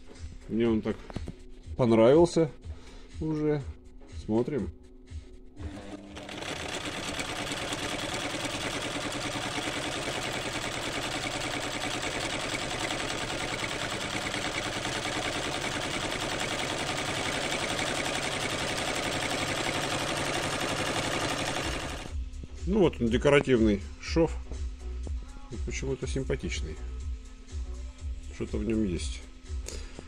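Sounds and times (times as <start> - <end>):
sewing machine running: 5.6 - 22.2.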